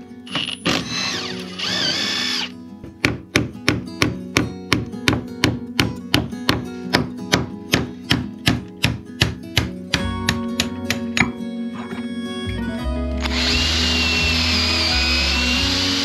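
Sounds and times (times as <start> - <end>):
acoustic guitar music: 0.0 - 0.7, 1.4 - 16.0
impact driver running: 0.3 - 2.5, 13.2 - 16.0.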